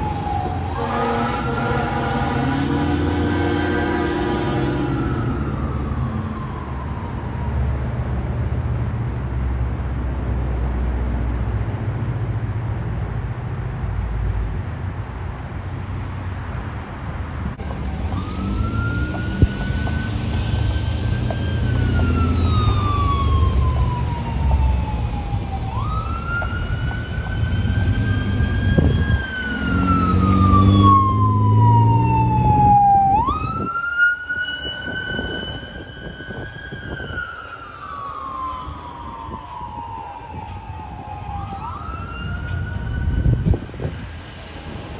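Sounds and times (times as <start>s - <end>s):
fire engine wail siren: 0.0s - 8.9s, 17.6s - 44.9s
road traffic rumble: 0.0s - 44.9s.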